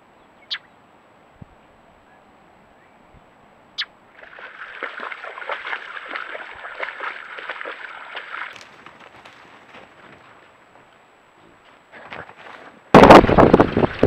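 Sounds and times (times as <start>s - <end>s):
deer splashing through water: 4.2s - 10.4s.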